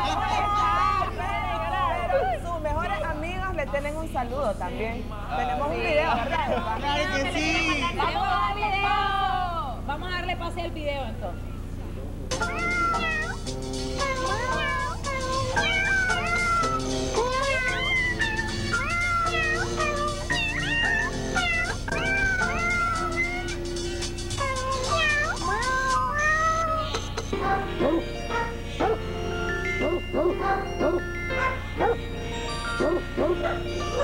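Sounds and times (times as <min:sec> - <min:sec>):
cat meows in a tune: 0:12.3 - 0:13.4, 0:14.0 - 0:23.6, 0:24.4 - 0:27.2
backing music: 0:12.3 - 0:26.1, 0:26.8 - 0:34.0.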